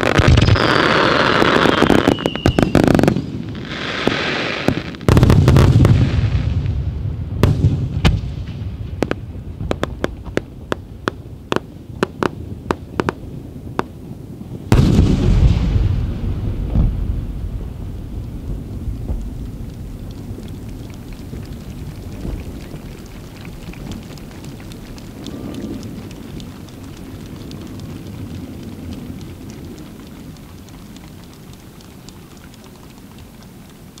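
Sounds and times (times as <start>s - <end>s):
sharp ticks and crackles: 0.0s - 3.2s, 9.0s - 14.0s, 17.8s - 34.0s
fireworks bangs: 0.0s - 31.6s
loud fireworks boom and rumble: 0.0s - 34.0s.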